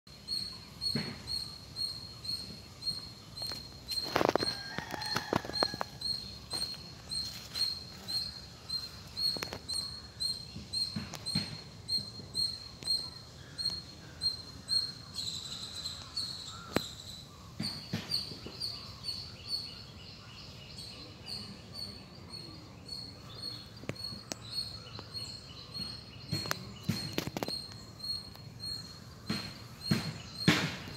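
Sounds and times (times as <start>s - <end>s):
small bird chirping: 0.1s - 30.9s.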